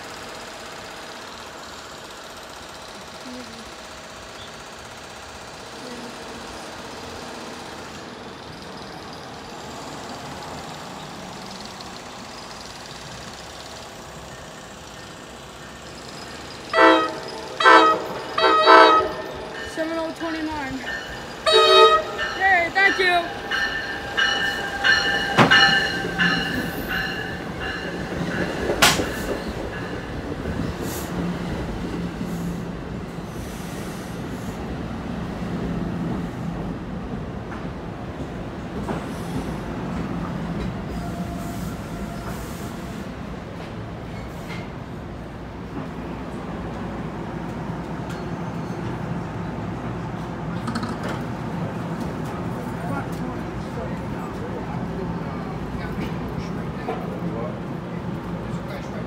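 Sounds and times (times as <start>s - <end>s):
train locomotive engine running: 0.0s - 59.0s
ringing bell: 22.1s - 28.0s.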